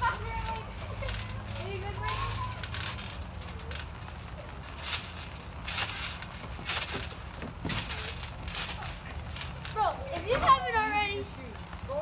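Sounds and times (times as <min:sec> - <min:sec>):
feet thumping on trampoline: 0:04.6 - 0:10.6.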